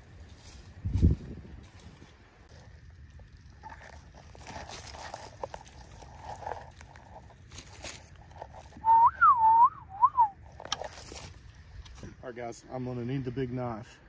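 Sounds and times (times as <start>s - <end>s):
dry leaves crackling and rustling: 0.0s - 8.9s, 10.4s - 11.8s
sliding whistle: 8.8s - 10.4s.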